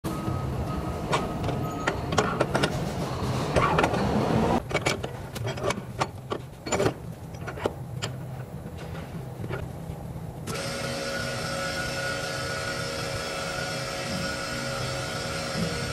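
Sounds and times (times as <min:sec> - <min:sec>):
low mechanical hum: 0:00.1 - 0:15.9
metal tools clicking and knocking: 0:04.6 - 0:09.6
whirring buzz: 0:10.4 - 0:15.9.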